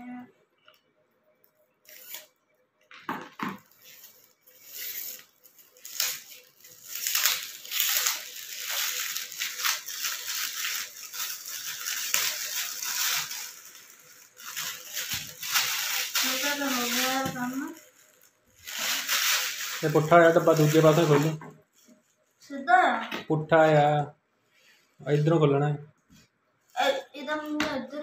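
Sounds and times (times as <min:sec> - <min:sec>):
plastic wrapping crinkling: 0:01.5 - 0:22.4.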